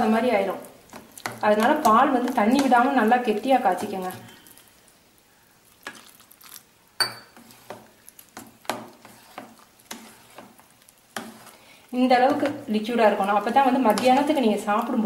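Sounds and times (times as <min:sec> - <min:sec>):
spatula scraping and squelching rice: 0:07.3 - 0:14.9.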